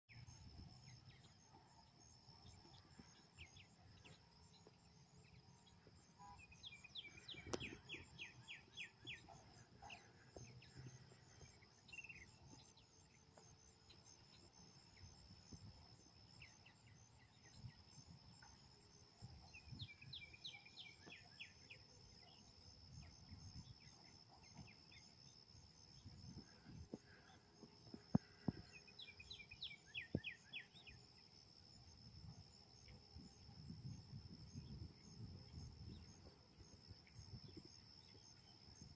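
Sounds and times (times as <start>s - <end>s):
insects trilling: 0.1s - 38.9s
songbird singing falling notes: 6.1s - 9.4s.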